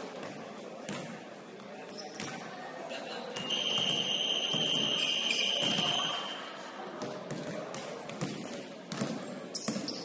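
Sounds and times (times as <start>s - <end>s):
scoreboard buzzer tone: 3.5s - 6.3s.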